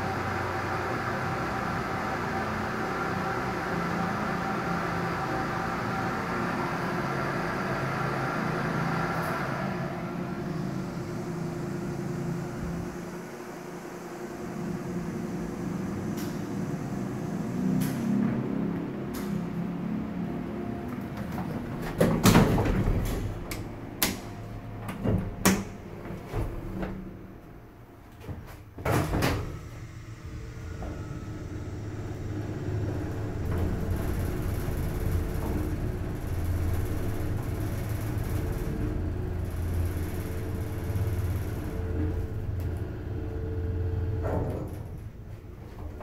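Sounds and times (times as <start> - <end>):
elevator pump motor humming: 0.0 - 46.0
elevator doors closing: 2.9 - 46.0.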